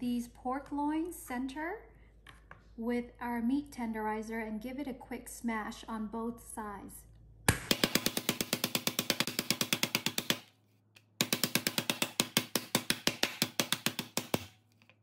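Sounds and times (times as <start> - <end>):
meat mallet pounding on board: 7.5 - 10.5, 11.2 - 14.6.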